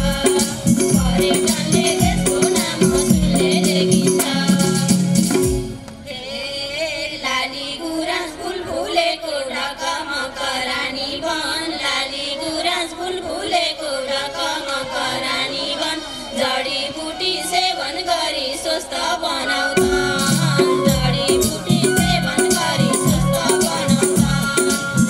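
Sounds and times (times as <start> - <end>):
drumming and rattling: 0.0 - 5.9, 19.8 - 25.0
women singing folk song: 0.0 - 25.0
light accompaniment: 19.8 - 25.0.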